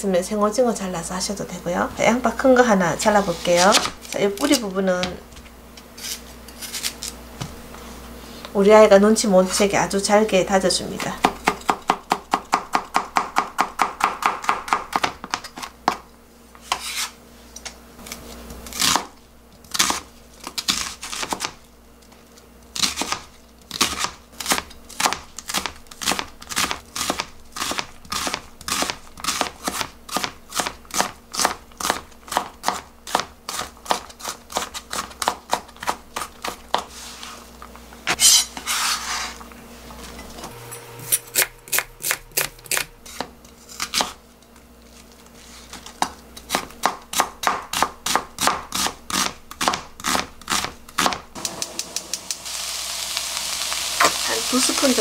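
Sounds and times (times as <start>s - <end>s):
knife scraping cutting board: 3.0s - 4.6s, 6.0s - 7.2s, 16.6s - 17.2s, 36.2s - 37.5s, 38.1s - 39.4s, 40.7s - 44.2s
knife chopping onion on board: 11.0s - 16.0s, 22.8s - 36.9s, 46.0s - 51.3s.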